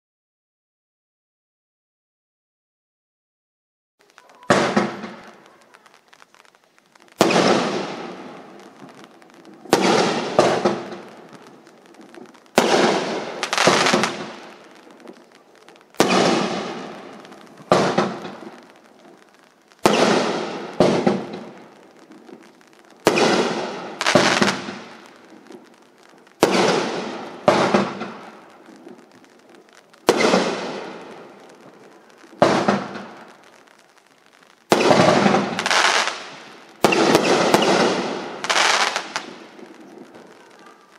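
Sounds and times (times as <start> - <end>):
fireworks bangs: 4.0 - 40.9.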